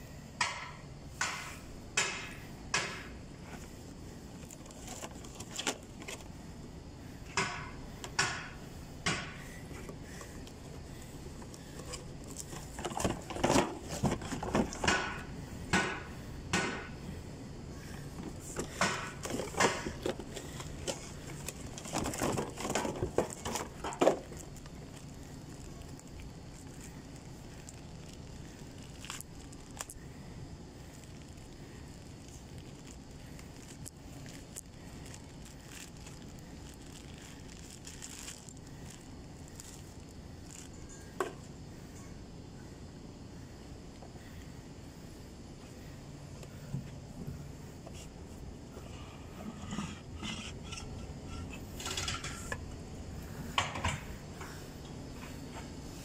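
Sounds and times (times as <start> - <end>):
packaging rustling: 4.4 - 6.3, 11.5 - 14.9, 18.3 - 30.0, 30.9 - 40.8.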